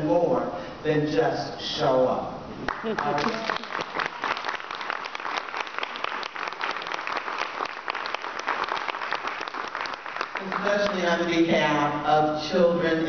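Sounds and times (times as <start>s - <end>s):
audience applauding: 2.7s - 11.2s.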